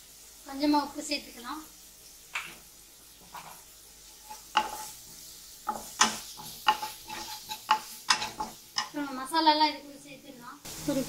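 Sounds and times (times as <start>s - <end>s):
soft sizzle of frying: 0.0s - 11.0s
wooden spatula scraping a pan: 3.2s - 9.4s.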